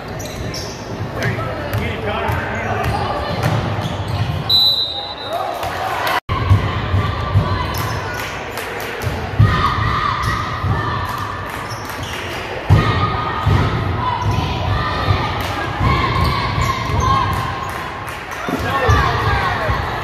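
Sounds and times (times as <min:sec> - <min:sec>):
basketball bouncing on gym floor: 0:01.6 - 0:04.5.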